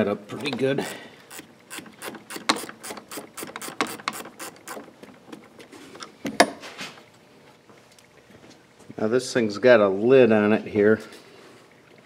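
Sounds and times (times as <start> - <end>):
ratcheting wrench clicking: 1.3 - 4.8.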